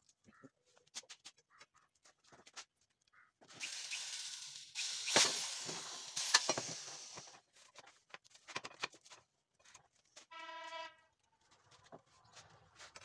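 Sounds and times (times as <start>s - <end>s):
electric drill whirring: 3.6s - 7.3s
metal parts knocking and clicking: 3.6s - 7.3s.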